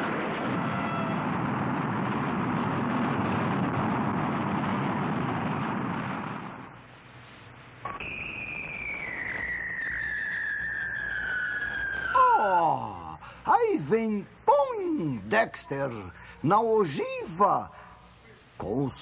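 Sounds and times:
cartoon rocket rushing: 0.0 - 6.7
descending cartoon whistle: 8.0 - 13.1.

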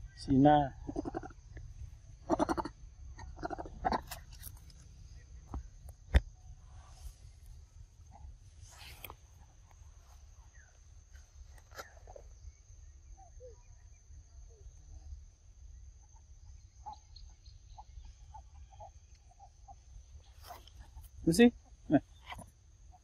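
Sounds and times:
chirping animal calls: 0.7 - 5.6, 16.1 - 21.2.

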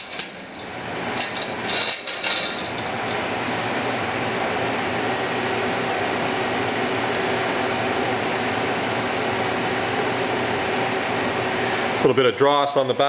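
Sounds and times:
cooling fan whirring hiss: 0.0 - 13.0.

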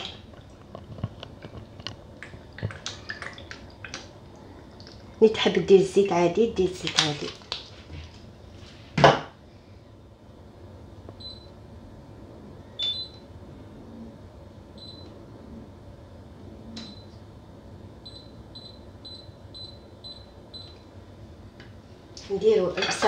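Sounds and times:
cooktop touch control beeps: 11.2 - 11.6, 12.8 - 13.2, 14.8 - 15.1, 18.1 - 20.8.

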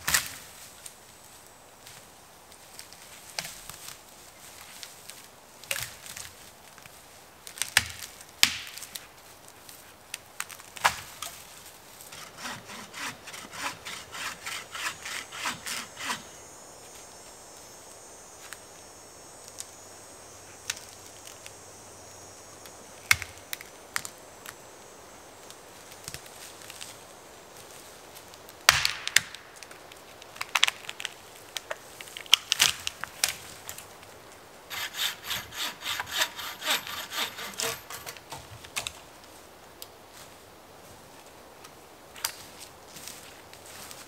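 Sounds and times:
hand saw cutting wood: 12.1 - 16.3, 34.7 - 38.3.

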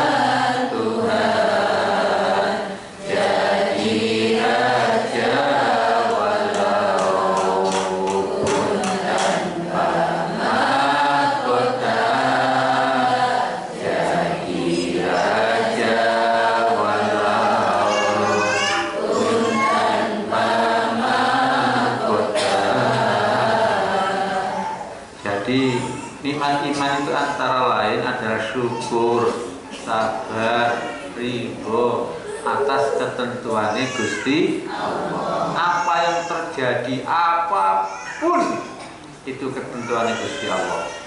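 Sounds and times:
man chanting a devotional song: 16.6 - 19.6, 25.2 - 34.7.

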